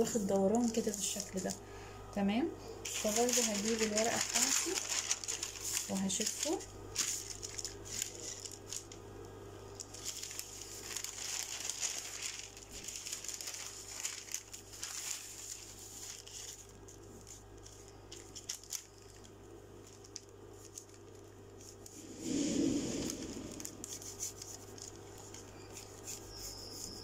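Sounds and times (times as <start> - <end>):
paper rustling and sliding: 2.9 - 9.0, 9.8 - 19.2, 21.6 - 26.2.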